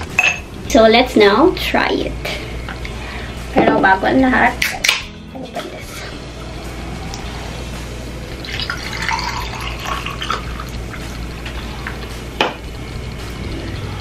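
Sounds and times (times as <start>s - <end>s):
soda pouring and fizzing: 8.4s - 12.1s.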